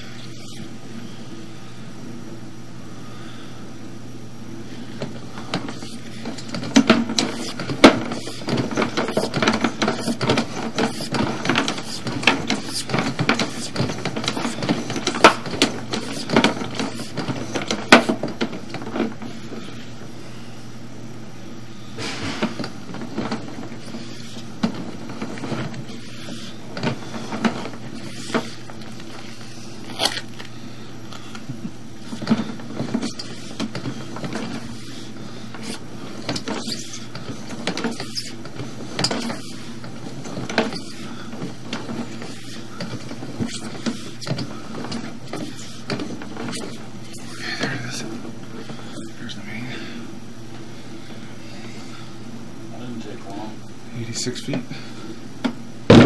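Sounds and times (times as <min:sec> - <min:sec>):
steady low hum: 0:00.0 - 0:56.0
cable reel rattling and knocking: 0:05.0 - 0:19.6, 0:22.0 - 0:29.6, 0:31.6 - 0:49.1.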